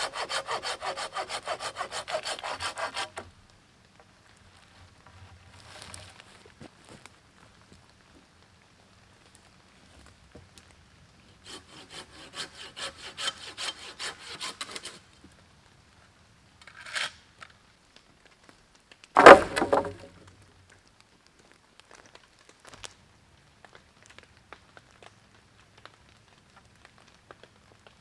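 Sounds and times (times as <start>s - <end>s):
hand saw cutting wood: 0.0s - 3.2s, 11.4s - 15.0s, 19.2s - 20.1s
loud wooden clatter: 19.2s - 20.1s.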